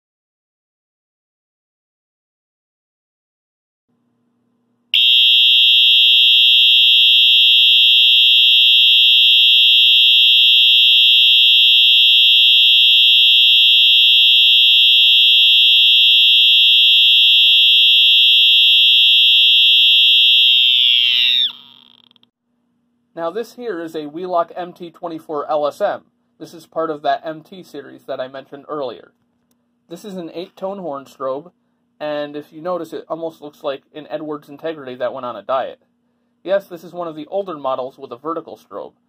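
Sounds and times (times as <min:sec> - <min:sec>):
fire alarm horn buzzer: 0:05.0 - 0:22.1.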